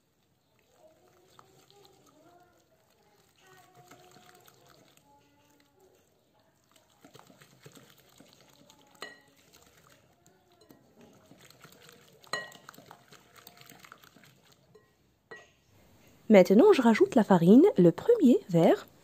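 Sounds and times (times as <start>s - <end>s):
whisk stirring thick batter: 0.2s - 14.9s
whisk clinking on glass bowl: 7.0s - 15.5s.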